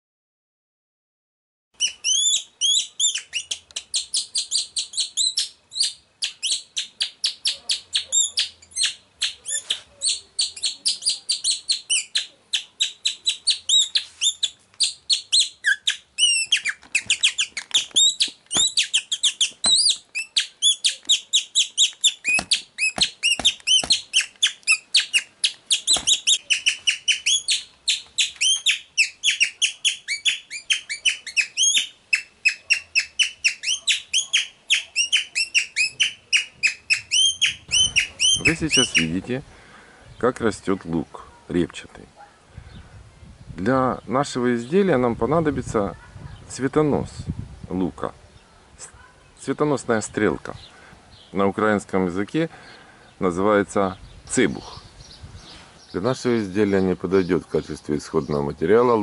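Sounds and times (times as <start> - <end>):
high-pitched bird-like chirping: 1.8 - 39.2.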